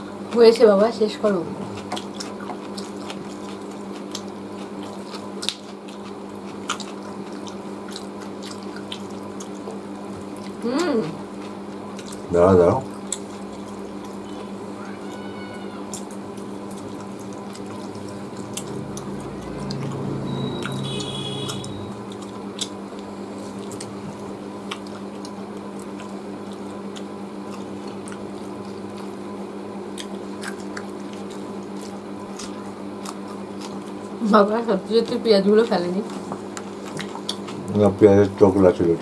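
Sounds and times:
steady hum: 0.0s - 39.0s
wet chewing and lip smacks: 1.7s - 10.6s, 11.3s - 12.3s, 12.9s - 14.2s, 15.9s - 20.8s, 21.4s - 24.0s, 24.6s - 29.2s, 29.9s - 34.2s, 36.0s - 37.7s
low rumble: 18.3s - 20.8s
brief high whistle: 20.3s - 22.0s.

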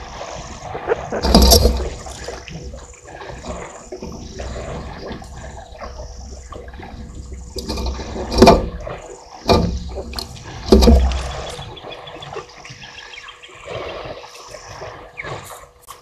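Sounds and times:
loud water splashes: 0.0s - 12.6s
elephants drinking and splashing water: 0.0s - 16.0s.

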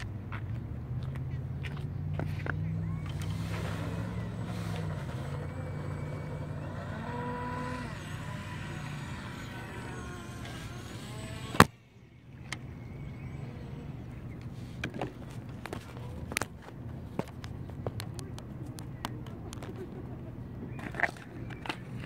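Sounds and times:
model boat motor drone: 2.1s - 16.5s.

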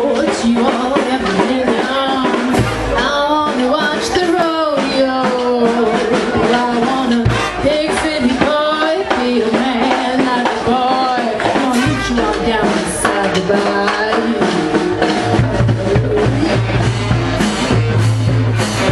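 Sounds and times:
drum hits: 0.0s - 18.9s
marching band playing: 0.0s - 18.9s
horns sliding between notes: 2.3s - 9.6s.

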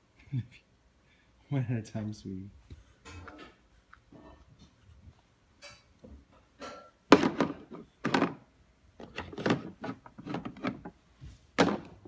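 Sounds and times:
plastic toy dishes clattering: 6.6s - 11.0s.

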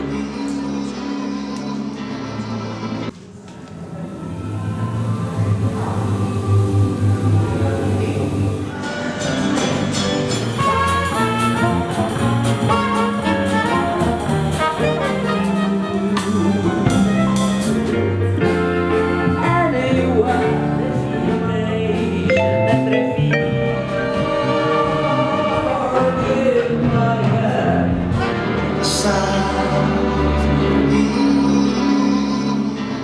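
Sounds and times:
person singing: 0.0s - 3.1s, 4.1s - 33.0s
jazzy music with brass and drums: 8.8s - 33.0s.

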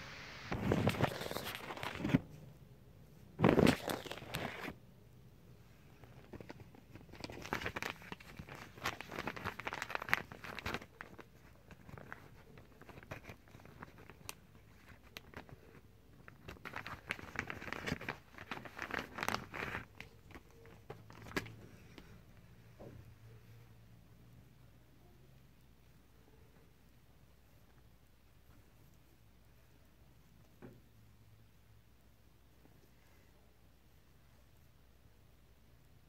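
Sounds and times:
plastic packaging crinkling: 0.6s - 2.2s, 3.4s - 4.8s, 6.0s - 21.6s.

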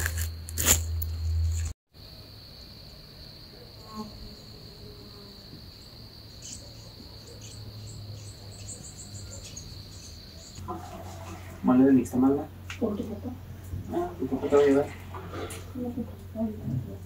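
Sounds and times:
crickets trilling: 0.0s - 10.6s.

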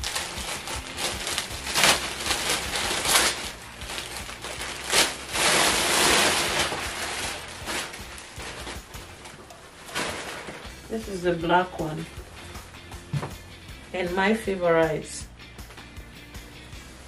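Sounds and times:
plastic bag rustling: 0.0s - 13.3s.

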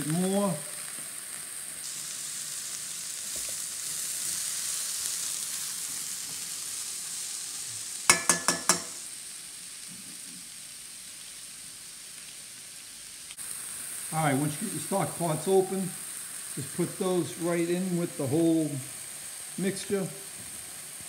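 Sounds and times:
mushrooms sizzling in a pan: 0.0s - 21.0s
ringing metal pan clanks: 8.1s - 9.0s.

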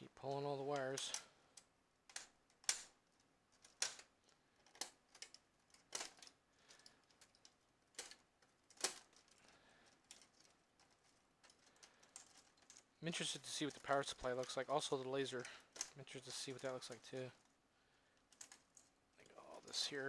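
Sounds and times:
sharp plastic clicks and snaps: 0.7s - 3.0s.

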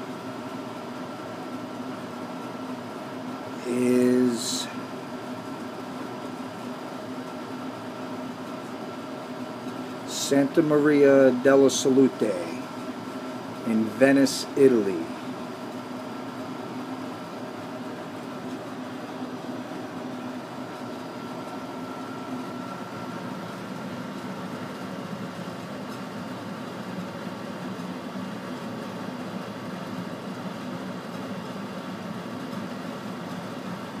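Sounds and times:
mechanical room hum: 0.0s - 34.0s.

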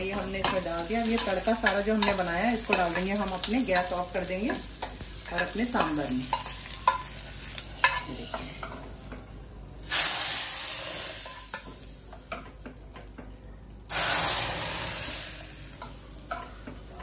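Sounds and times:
hot oil sizzling: 0.0s - 17.0s.

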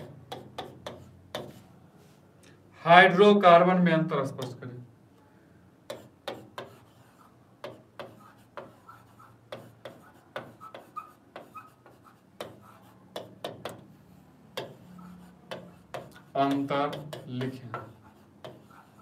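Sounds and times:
pen tapping on glass: 0.0s - 1.6s, 13.2s - 13.8s, 14.6s - 14.8s, 15.5s - 18.7s.

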